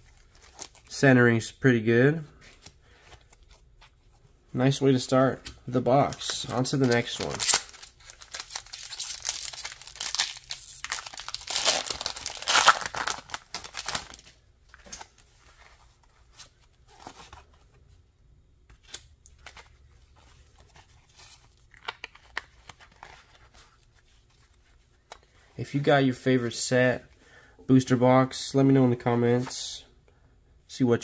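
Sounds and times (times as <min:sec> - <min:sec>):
cards clicking and rustling: 0:05.4 - 0:15.2, 0:20.6 - 0:23.6
foil wrapper tearing and crinkling: 0:06.8 - 0:14.3.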